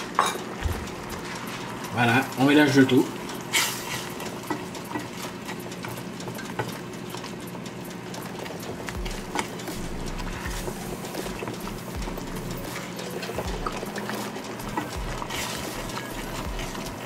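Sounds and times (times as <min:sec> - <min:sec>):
sauce simmering: 0:00.0 - 0:17.0
wooden spoon scraping pot: 0:13.5 - 0:17.0.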